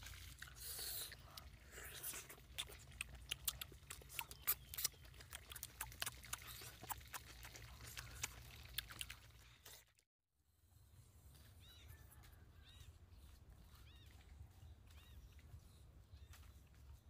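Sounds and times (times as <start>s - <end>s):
wet chewing and lip-smacking: 0.0s - 10.0s.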